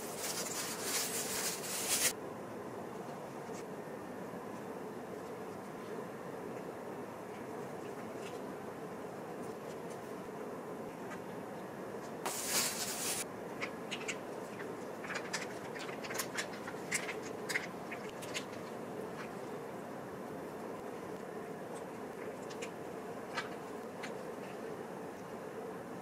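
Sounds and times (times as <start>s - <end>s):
rice paper crinkling: 0.0s - 2.2s, 12.3s - 13.2s.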